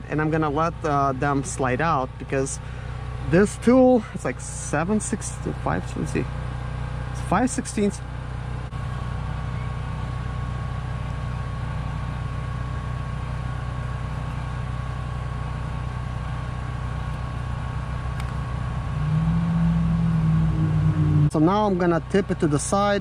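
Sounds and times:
low mechanical hum: 0.0 - 23.0
thin high whine: 18.8 - 21.6.

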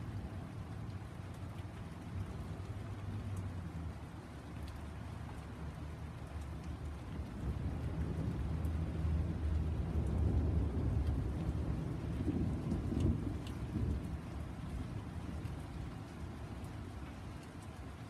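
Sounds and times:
faint ticks: 4.5 - 5.5, 12.6 - 13.6
thunder rumbling: 7.2 - 16.0.

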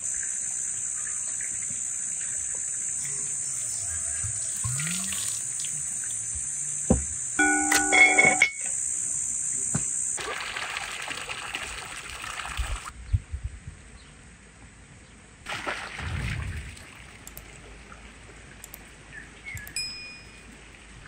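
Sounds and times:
running water: 1.0 - 6.3, 10.2 - 13.0
soft knocks: 6.9 - 7.1.

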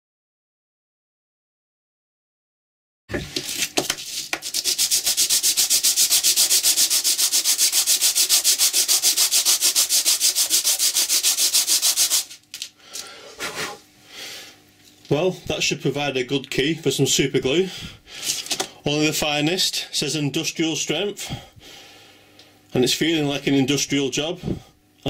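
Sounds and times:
metal disc scratching on sandpaper: 4.0 - 12.4.

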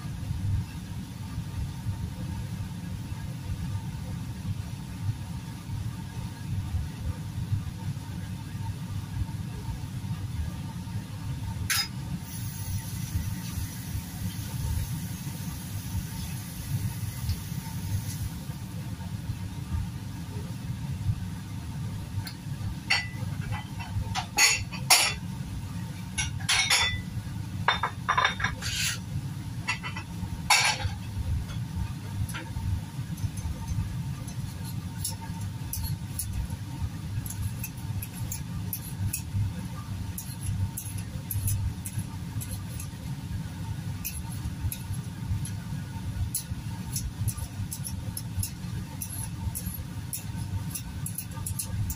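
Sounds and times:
dishes clinking at sink: 26.2 - 27.1, 27.7 - 28.7.

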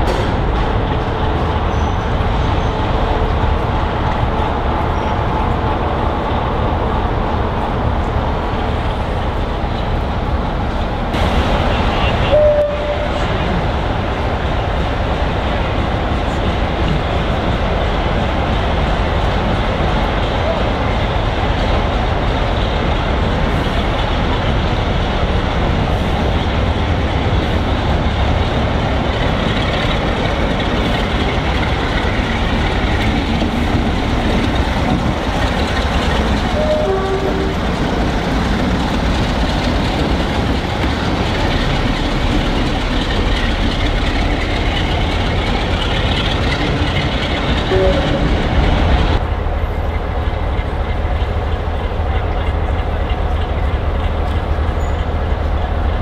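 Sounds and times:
diesel locomotive engine rumble: 0.0 - 56.0.

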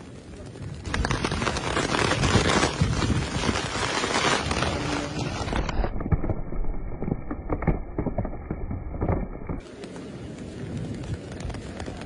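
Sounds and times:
wind buffeting microphone: 0.0 - 6.1, 9.6 - 12.0.

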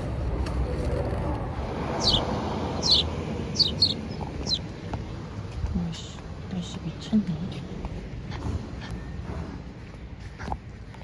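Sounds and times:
low outdoor rumble: 0.0 - 11.0
bird sharp downward chirps: 2.0 - 4.7.

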